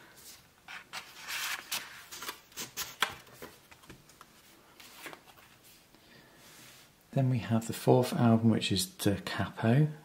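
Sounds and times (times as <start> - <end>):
cardboard sleeves rustling: 0.1 - 5.9.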